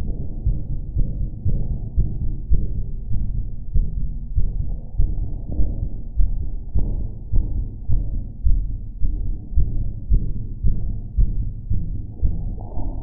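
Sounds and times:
heartbeat thumps: 0.0 - 13.0.

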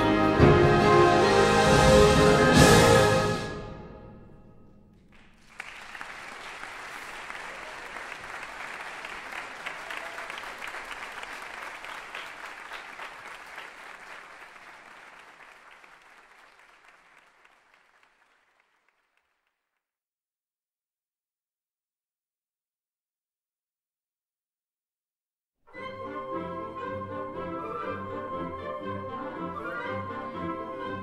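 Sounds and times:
audience applause: 5.1 - 19.6.

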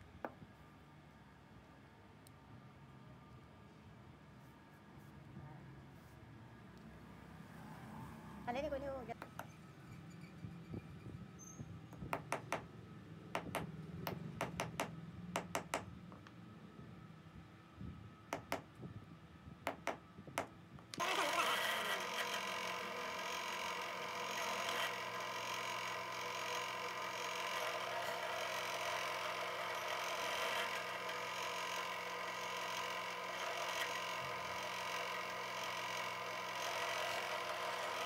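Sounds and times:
sharp irregular taps: 12.0 - 12.7, 13.4 - 15.9, 18.3 - 18.7, 19.7 - 20.5
drill press running: 19.7 - 38.0.

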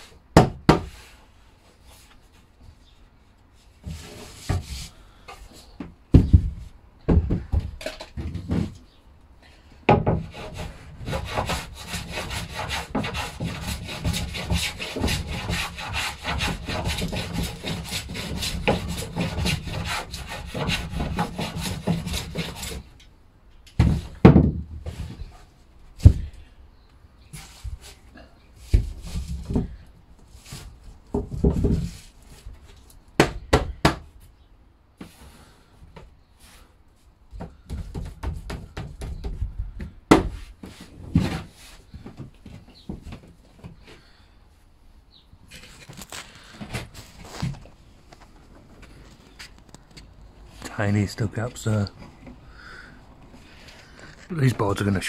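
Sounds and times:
hand tool scraping a wooden board: 3.8 - 5.7, 9.9 - 22.9, 40.6 - 42.6
knocks on wood: 23.8 - 24.7.

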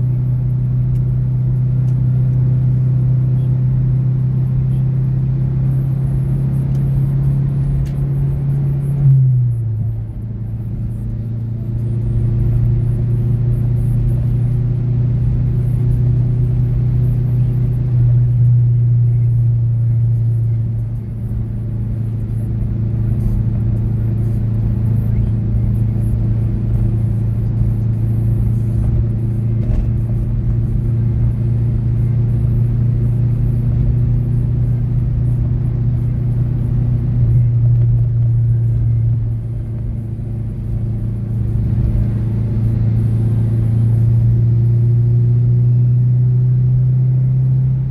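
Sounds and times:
car engine drone in cabin: 0.0 - 47.9.

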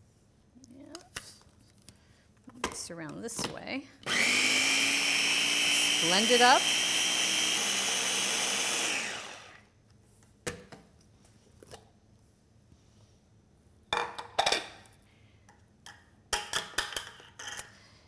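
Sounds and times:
food chopper motor spinning: 4.0 - 9.7.

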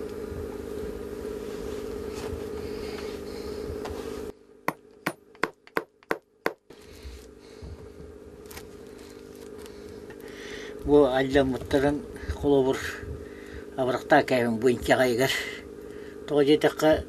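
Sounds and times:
low hum: 6.7 - 17.0.

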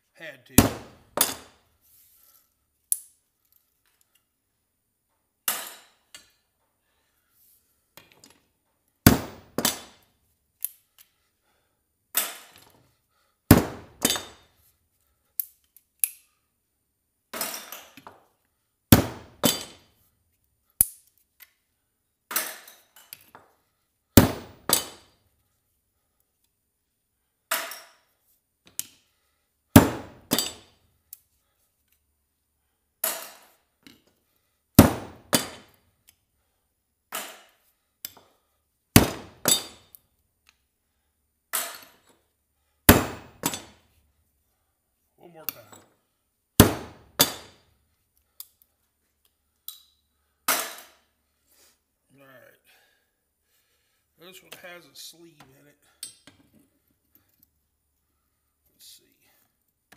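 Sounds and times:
hammer striking metal: 39.0 - 39.8, 46.6 - 47.5.

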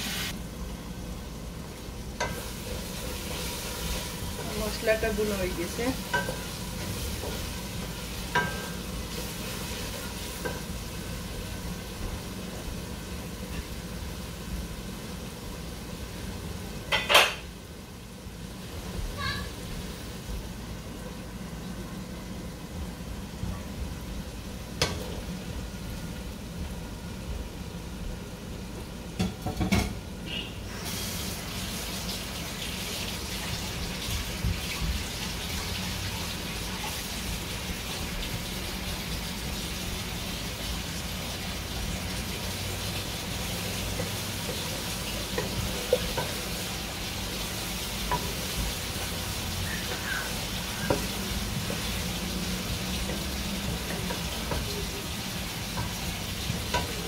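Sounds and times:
shrimp sizzling in hot oil: 0.0 - 0.7, 1.4 - 20.6, 29.2 - 57.0
wooden spoon scraping and tapping pan: 43.9 - 46.4.

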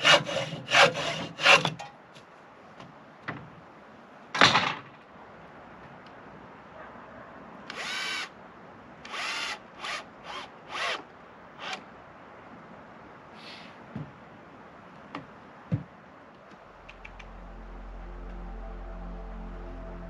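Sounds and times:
power drill in short bursts: 7.7 - 8.3.

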